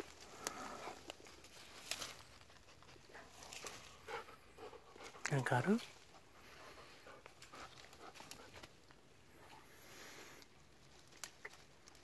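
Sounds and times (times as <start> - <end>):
dog breathing faintly: 2.6 - 10.4.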